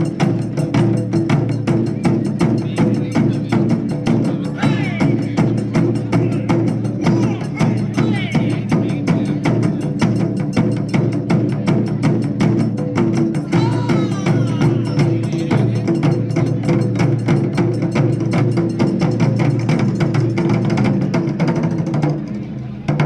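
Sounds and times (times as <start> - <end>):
drum ensemble playing fast beat: 0.0 - 23.0.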